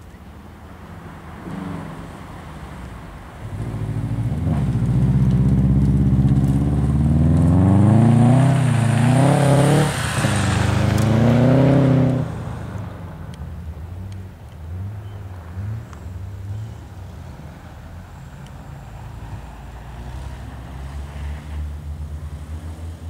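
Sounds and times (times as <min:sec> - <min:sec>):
car engine accelerating hard: 0:01.3 - 0:13.2.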